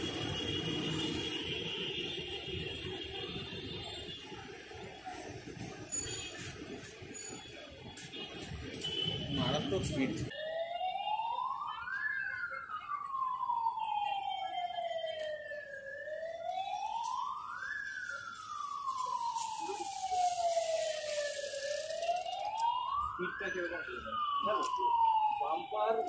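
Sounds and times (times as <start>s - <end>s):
electronic siren wailing: 9.6s - 26.0s.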